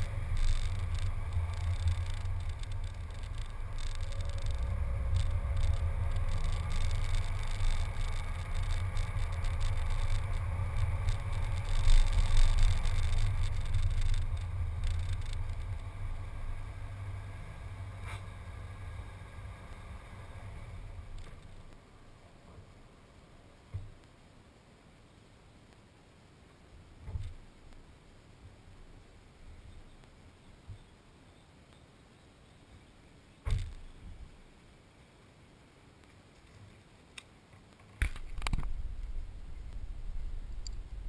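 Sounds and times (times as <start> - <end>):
car driving rumble: 0.0 - 24.0, 38.0 - 41.0.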